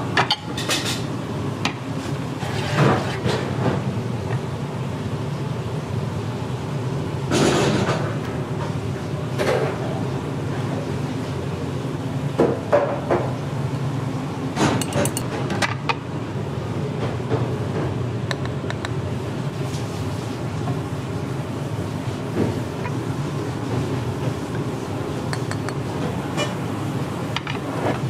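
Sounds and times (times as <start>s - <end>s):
metal ladles clinking on pans and bowls: 14.8s - 15.3s.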